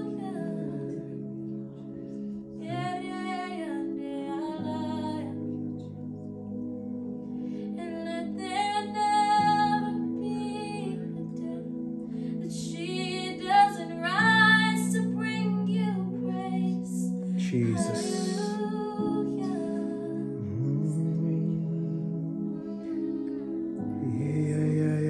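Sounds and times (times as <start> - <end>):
woman singing: 0.0 - 1.2, 2.6 - 5.5, 7.8 - 11.7, 12.4 - 20.3
sustained chords: 16.7 - 19.2.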